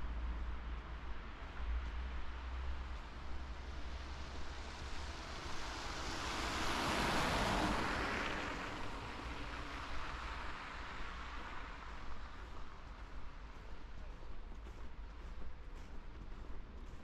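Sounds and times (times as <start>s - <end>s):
car tyres hissing on wet road: 4.0s - 12.3s.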